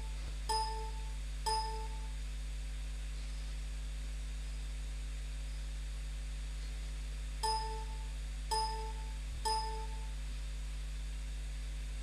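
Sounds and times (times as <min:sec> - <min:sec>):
low electrical hum: 0:00.0 - 0:12.0
short electronic beep: 0:07.4 - 0:10.1.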